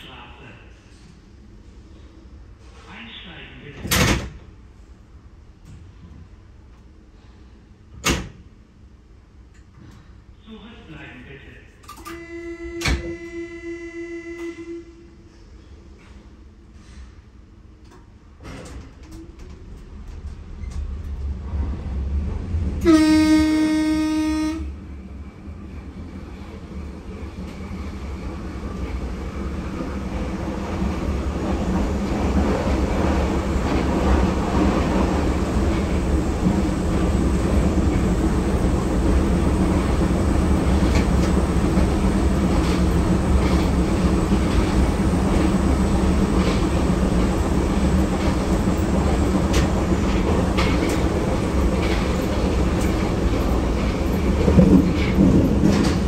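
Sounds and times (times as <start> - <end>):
train running noise and motor hum: 0.0 - 56.0
train horn blast: 12.1 - 15.2, 22.8 - 24.8.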